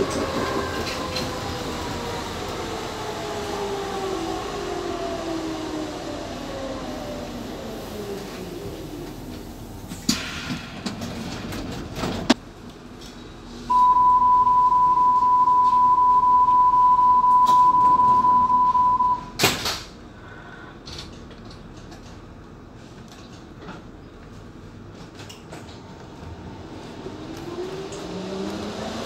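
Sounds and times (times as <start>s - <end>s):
steady high beep: 13.7s - 19.3s.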